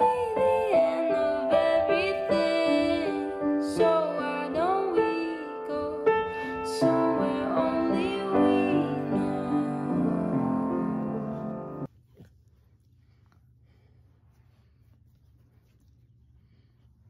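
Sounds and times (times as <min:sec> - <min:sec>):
person singing: 0:00.0 - 0:11.9
piano notes: 0:00.0 - 0:11.9.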